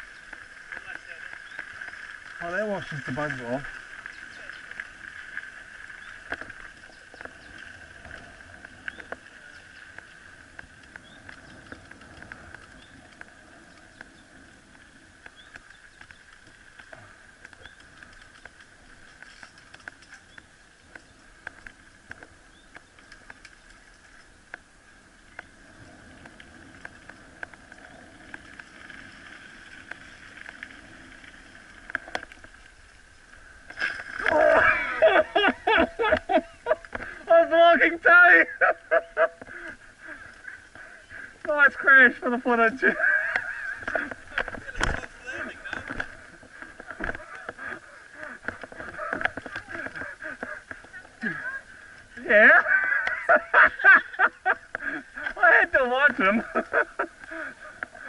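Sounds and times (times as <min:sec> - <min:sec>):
bike tyre and drivetrain noise: 0:00.0 - 0:58.0
light clicks and rattles: 0:00.2 - 0:24.7.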